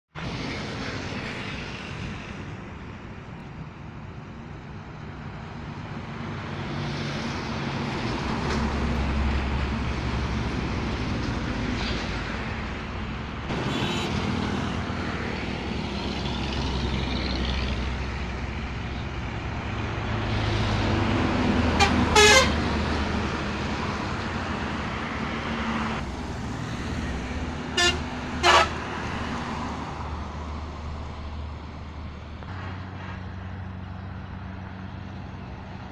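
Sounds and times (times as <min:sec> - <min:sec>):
heavy trucks driving past: 0:00.2 - 0:35.9
vehicle horn honking: 0:13.6 - 0:14.2, 0:21.8 - 0:22.6, 0:27.8 - 0:28.8.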